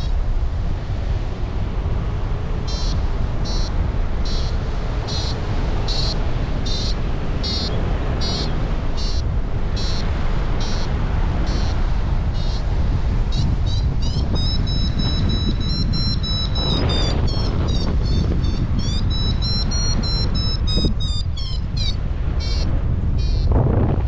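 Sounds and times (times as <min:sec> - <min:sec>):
wind noise on microphone: 0:00.0 - 0:24.0
variometer beeping: 0:02.6 - 0:10.9, 0:13.2 - 0:23.6.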